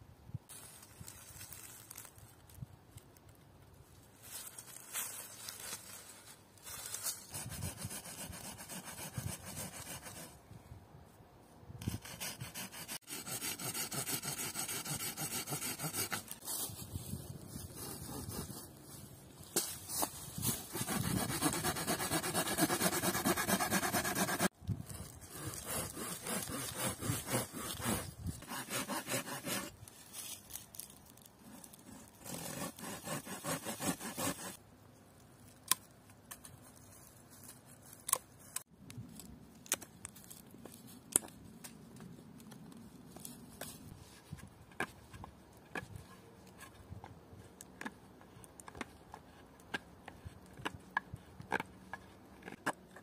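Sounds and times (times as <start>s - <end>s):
hand saw sawing wood: 7.3s - 10.3s, 11.8s - 16.4s, 20.5s - 24.5s, 25.3s - 29.8s, 31.9s - 34.6s
knife carving stick: 20.6s - 24.5s, 25.3s - 29.7s, 31.5s - 34.6s.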